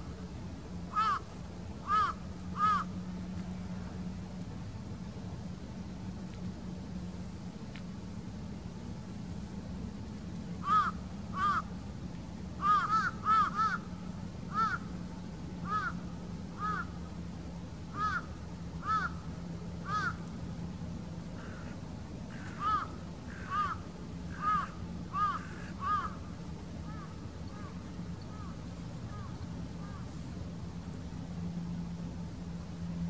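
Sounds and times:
steady low hum: 0.0 - 33.0
crow cawing: 0.9 - 1.2, 1.8 - 2.9, 10.6 - 11.7, 12.6 - 13.9, 14.5 - 14.9, 15.6 - 16.0, 16.6 - 16.9, 17.9 - 19.2, 19.8 - 20.2, 21.4 - 26.2, 26.9 - 28.5.

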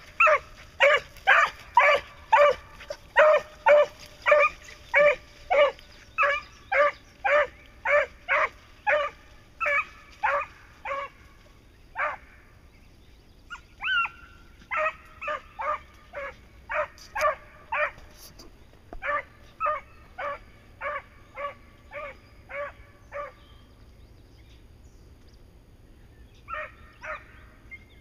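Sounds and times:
dogs barking: 0.0 - 11.2, 11.9 - 12.4, 13.5 - 18.3, 19.0 - 23.4, 26.4 - 27.8.

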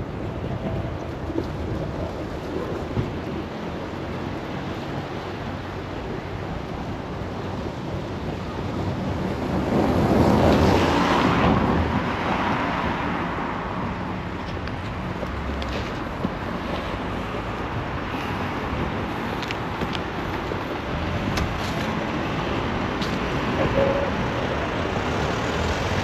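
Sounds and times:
car passing: 9.5 - 26.0.

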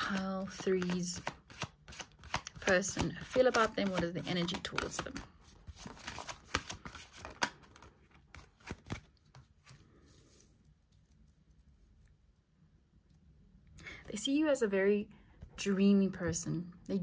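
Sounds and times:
cards being shuffled: 0.0 - 11.8
faint card handling: 0.0 - 12.3.

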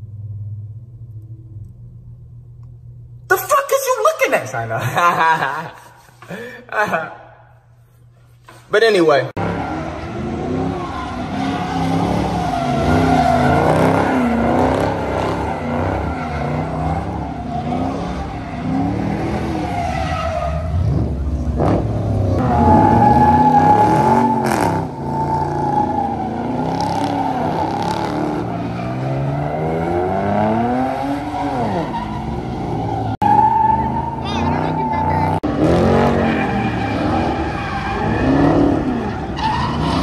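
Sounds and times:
car engines revving: 9.4 - 40.0
tires squealing on pavement: 9.4 - 40.0.

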